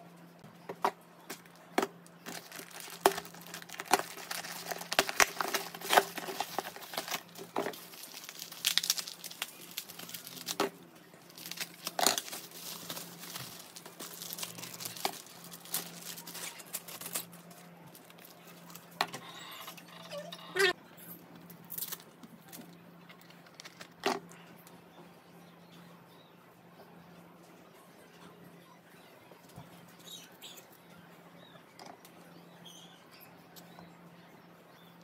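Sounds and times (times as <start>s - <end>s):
bubble wrap crinkling: 1.4s - 19.0s
cardboard and tape tearing: 2.2s - 10.7s.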